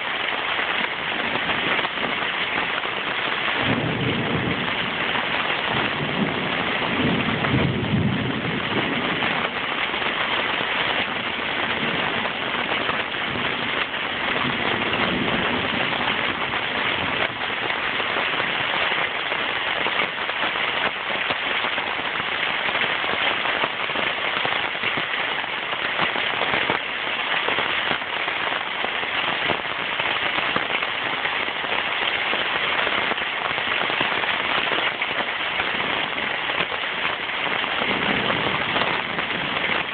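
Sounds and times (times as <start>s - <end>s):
heavy rain: 0.0s - 39.9s
low thunder rumble: 3.6s - 9.8s, 11.1s - 17.4s, 37.7s - 39.9s.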